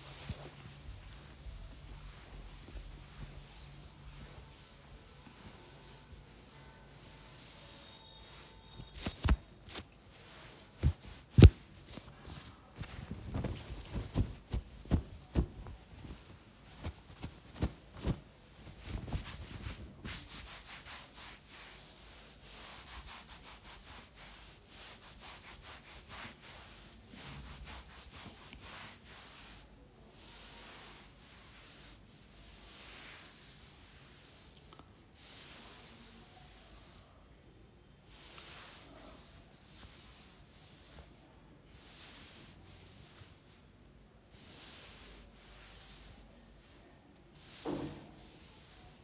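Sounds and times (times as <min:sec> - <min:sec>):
fingers rubbing through hair: 0:08.8 - 0:18.2, 0:18.8 - 0:29.6
hands patting scalp: 0:08.8 - 0:18.2.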